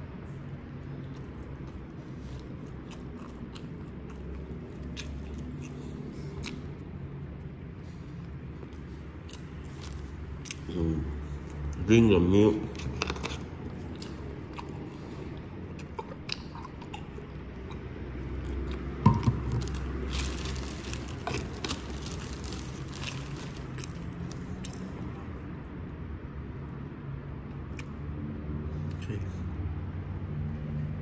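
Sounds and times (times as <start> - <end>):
steady low hum: 0.0 - 27.8
plastic bag crinkling: 19.4 - 24.8.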